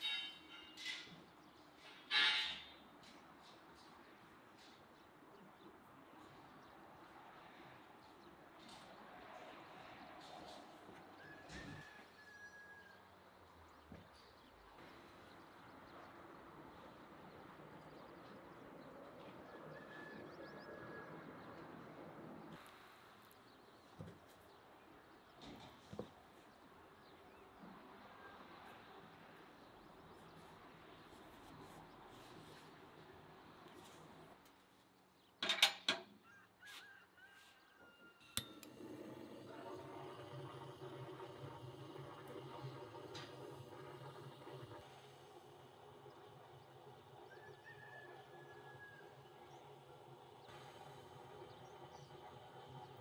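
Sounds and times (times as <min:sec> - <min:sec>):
blowtorch flame hissing: 0:38.6 - 0:46.6.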